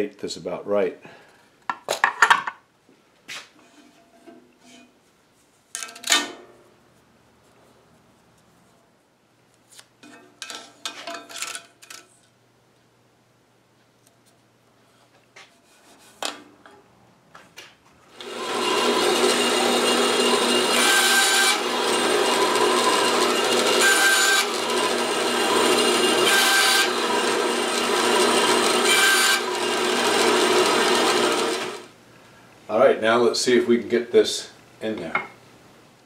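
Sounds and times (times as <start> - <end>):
band saw cutting wood: 18.1 - 31.9.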